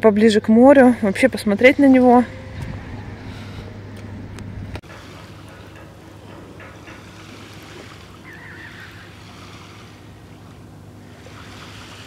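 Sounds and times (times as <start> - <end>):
sea surf on shore: 1.1 - 12.0
wind on microphone: 1.6 - 4.8.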